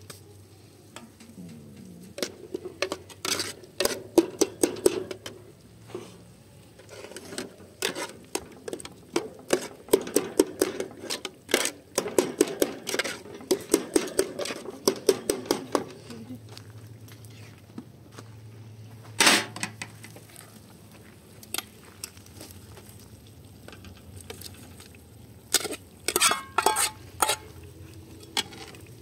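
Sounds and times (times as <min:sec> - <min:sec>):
utensils clinking on metal pots: 0:02.0 - 0:05.4, 0:06.8 - 0:16.2, 0:25.5 - 0:27.6, 0:28.2 - 0:28.9.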